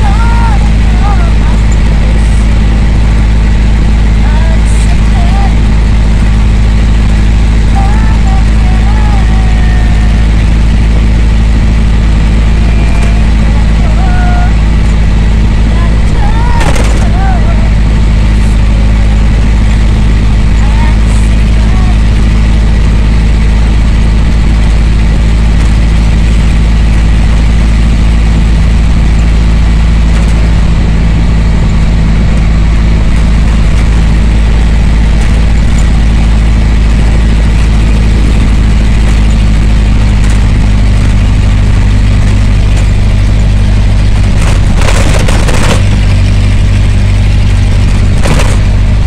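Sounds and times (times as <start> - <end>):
road noise inside vehicle: 0.0 - 49.0
vehicle engine drone: 0.0 - 49.0.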